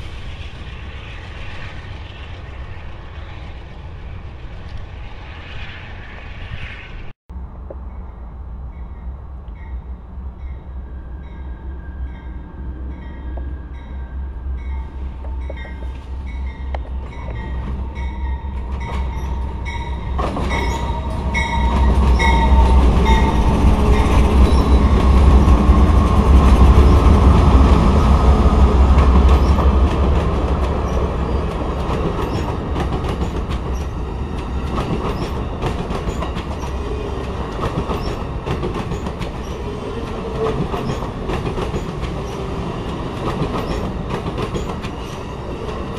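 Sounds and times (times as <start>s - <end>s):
diesel locomotive engines: 0.0s - 45.9s
train cars rolling clatter: 14.8s - 45.9s.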